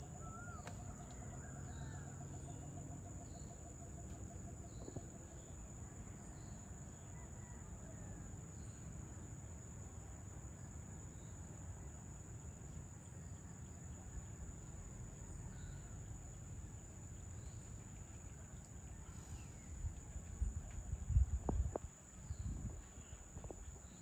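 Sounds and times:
insects trilling: 0:00.0 - 0:24.0
wind buffeting microphone: 0:19.5 - 0:23.9.

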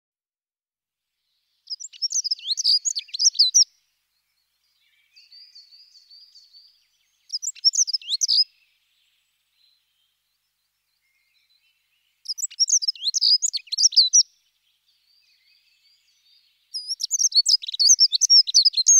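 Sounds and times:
songbird warbling: 0:01.7 - 0:03.7, 0:07.3 - 0:08.5, 0:12.2 - 0:14.3, 0:15.8 - 0:18.9.

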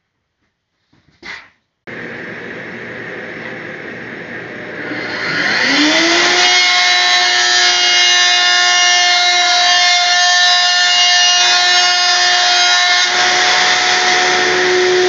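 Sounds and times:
dust extraction vacuum: 0:01.9 - 0:10.1, 0:11.3 - 0:15.0
router motor whining: 0:01.9 - 0:15.0
wood fed past router bit: 0:01.9 - 0:15.0.

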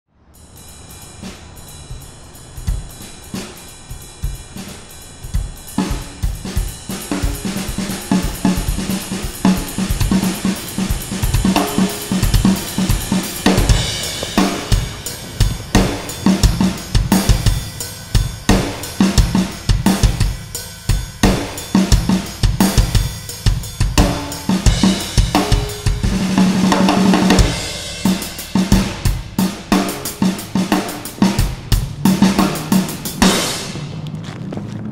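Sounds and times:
drum kit playing fast beat: 0:00.4 - 0:34.0.

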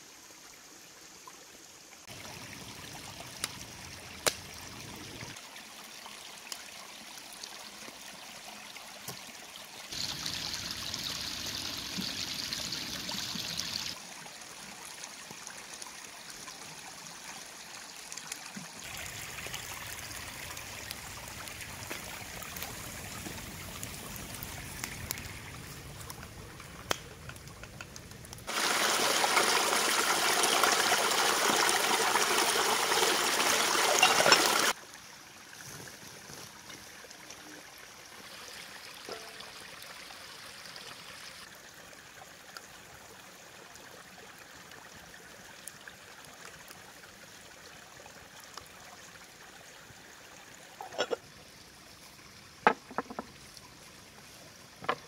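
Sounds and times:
creek trickling over stones: 0:00.0 - 0:55.0
water splashing over a pot: 0:09.9 - 0:14.0, 0:18.8 - 0:34.8, 0:39.0 - 0:40.0, 0:52.6 - 0:53.6.

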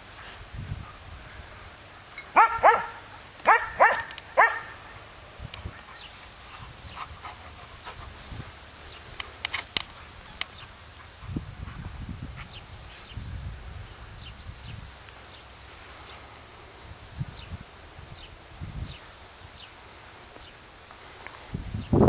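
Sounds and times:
dog barking: 0:02.4 - 0:04.8.

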